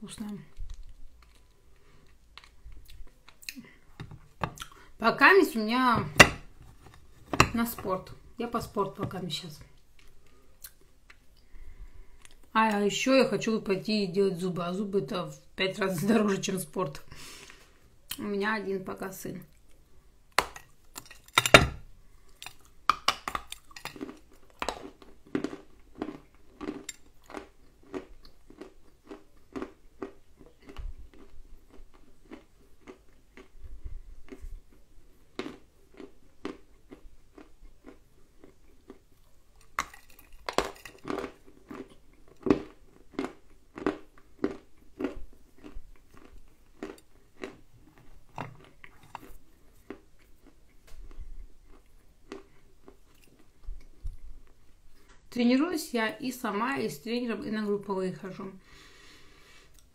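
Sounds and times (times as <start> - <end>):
crunchy clay being chewed: 22.2 - 55.2.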